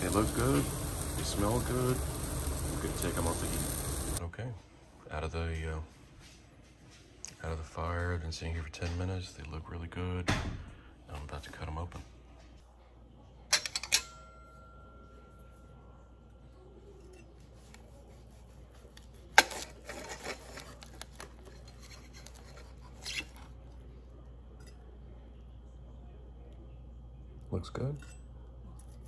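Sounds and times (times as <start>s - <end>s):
cutlery clinking on plate: 13.5s - 14.4s.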